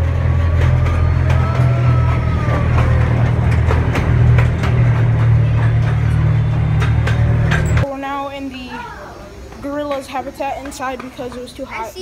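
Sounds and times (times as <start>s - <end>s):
loud low rumble: 0.0s - 7.9s.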